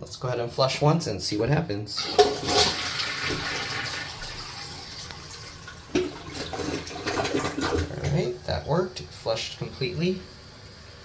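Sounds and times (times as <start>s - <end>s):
toilet flushing: 2.0s - 11.0s.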